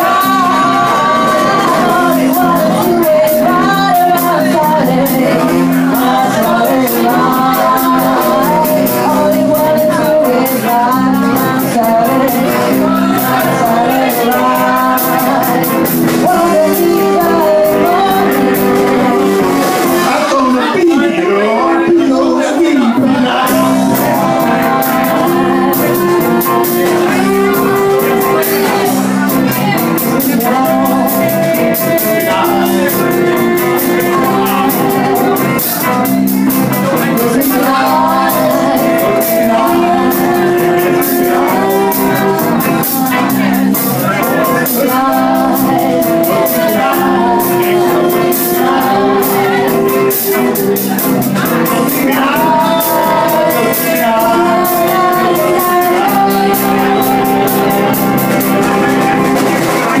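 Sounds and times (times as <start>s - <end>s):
person singing over guitar: 0.0s - 60.0s.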